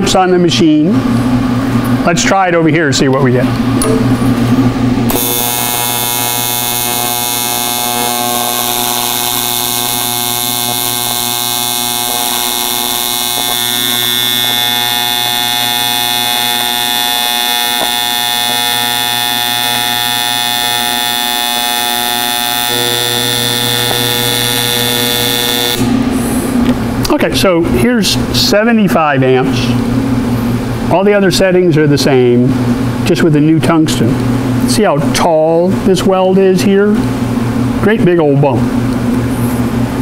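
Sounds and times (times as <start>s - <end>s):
welding arc buzzing: 4.0s - 27.1s.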